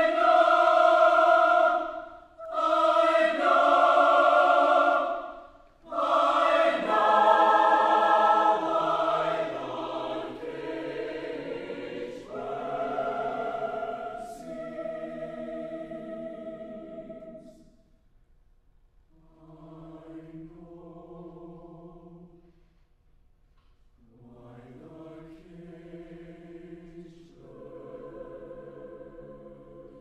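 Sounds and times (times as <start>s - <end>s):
choir singing held chords: 0.0s - 17.9s, 19.2s - 22.3s, 24.0s - 30.0s.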